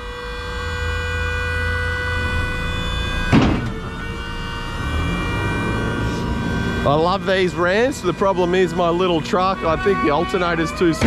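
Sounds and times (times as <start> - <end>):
high-pitched hydraulic pump whine: 0.0 - 11.0
low diesel engine idle: 0.0 - 11.0
loud metal clank: 3.1 - 4.0.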